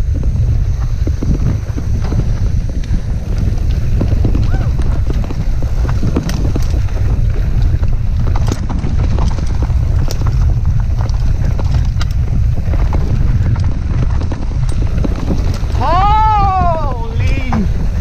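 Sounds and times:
bike rattles and knocks: 0:00.0 - 0:18.0
bike tyre rumble on dirt: 0:00.0 - 0:18.0
wind buffeting microphone: 0:00.0 - 0:18.0.

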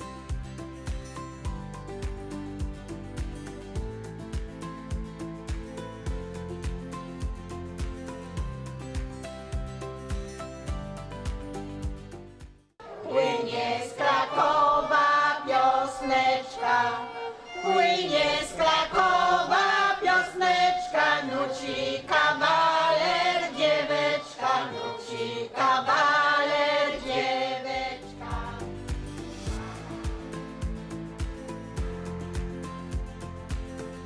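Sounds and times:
music with bass line: 0:00.0 - 0:12.7, 0:28.2 - 0:34.0
choir singing: 0:12.8 - 0:30.7.

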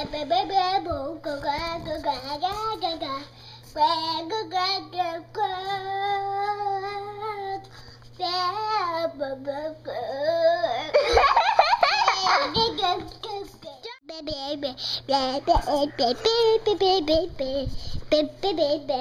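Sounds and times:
young child singing: 0:00.0 - 0:10.9, 0:12.2 - 0:19.0.

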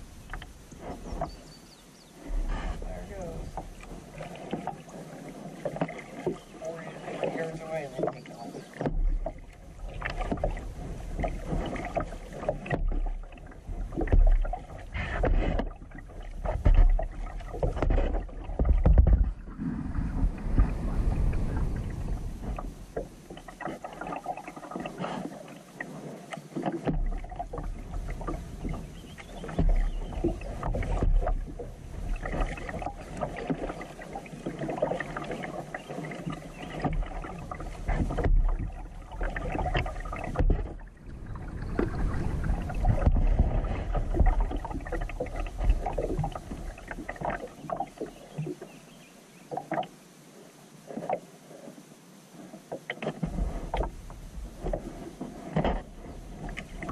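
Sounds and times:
kayak paddle strokes in water: 0:00.0 - 0:56.9
steady low rumble: 0:18.8 - 0:23.6, 0:40.7 - 0:46.8.

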